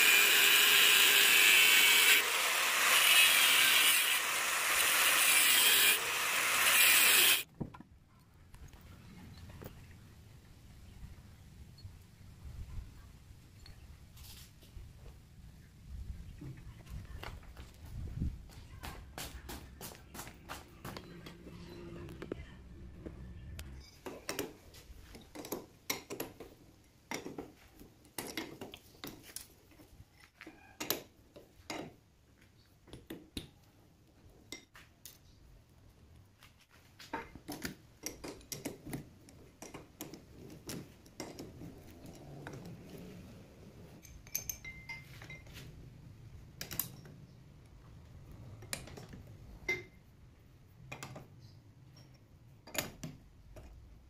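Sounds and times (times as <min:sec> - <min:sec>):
steel tools clinking: 0:44.0 - 0:45.6.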